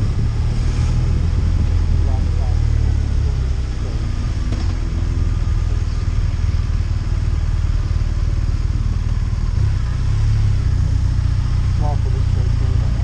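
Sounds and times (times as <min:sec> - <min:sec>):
wind noise: 0:00.0 - 0:06.6
motorcycle engine rumble: 0:00.0 - 0:13.0.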